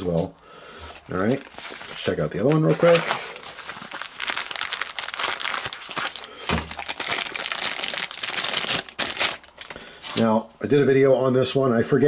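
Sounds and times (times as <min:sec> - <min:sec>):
plastic bag crinkling: 0:01.1 - 0:10.2.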